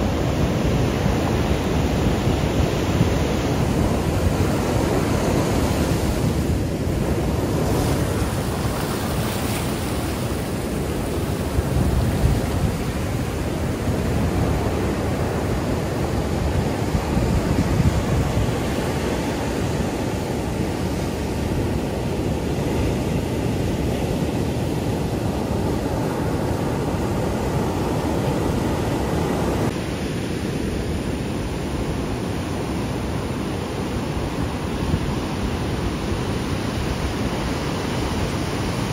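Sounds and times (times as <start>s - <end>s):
wind buffeting microphone: 0.0s - 29.8s
waves breaking on beach: 0.0s - 38.9s.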